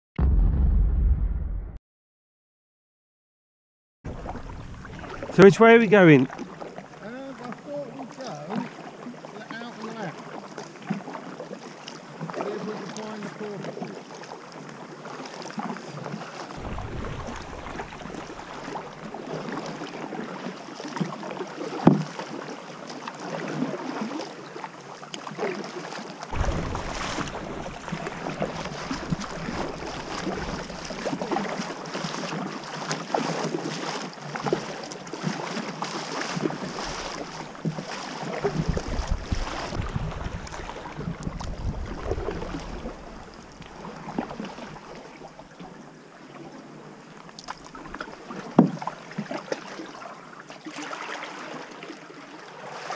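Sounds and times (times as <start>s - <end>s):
kayak paddle splashing in water: 4.1s - 45.8s, 46.4s - 52.9s
wind buffeting microphone: 16.6s - 19.2s, 26.3s - 31.3s, 38.4s - 43.4s.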